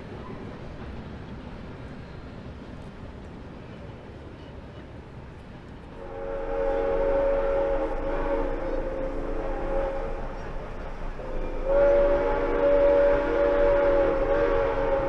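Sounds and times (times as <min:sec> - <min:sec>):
steam locomotive whistle: 0:06.0 - 0:15.0.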